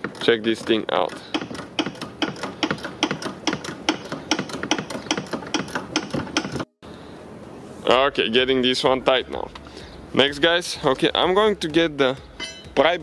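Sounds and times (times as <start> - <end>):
ratcheting wrench clicking: 0.0 - 6.6.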